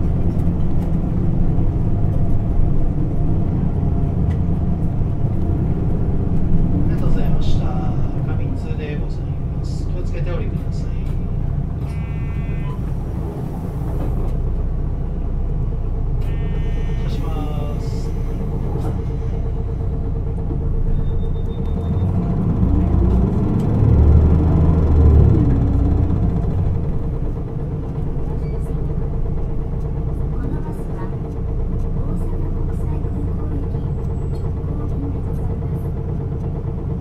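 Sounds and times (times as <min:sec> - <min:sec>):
bus diesel engine: 0:00.0 - 0:37.0
road rumble: 0:00.0 - 0:37.0
air conditioning running: 0:00.5 - 0:21.5.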